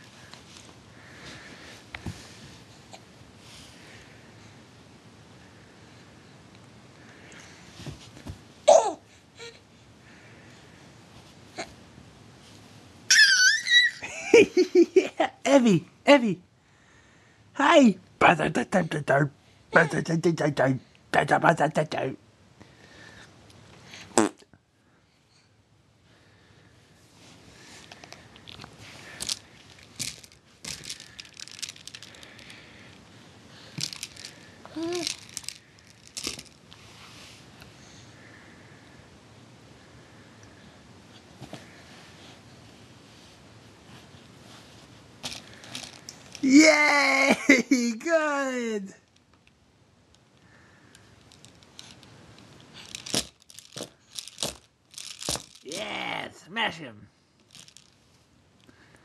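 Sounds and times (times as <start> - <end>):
faint rustle: 26.2 - 39.0, 39.8 - 46.4
plastic rings clacking and rattling: 29.2 - 32.5, 33.8 - 36.6, 45.2 - 46.4, 51.2 - 52.1, 52.8 - 55.7, 57.5 - 58.0
baby vocalizing: 34.7 - 35.1.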